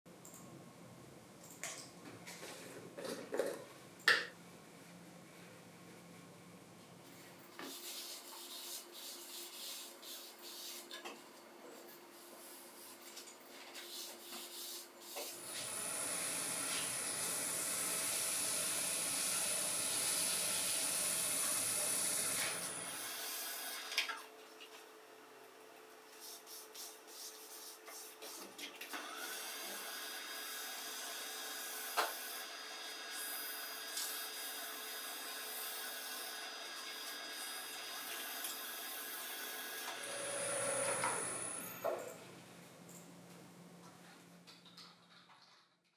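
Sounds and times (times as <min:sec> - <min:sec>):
wood lathe motor whine: 0:15.5 - 0:23.8, 0:34.2 - 0:42.1
lathe humming: 0:39.9 - 0:42.0.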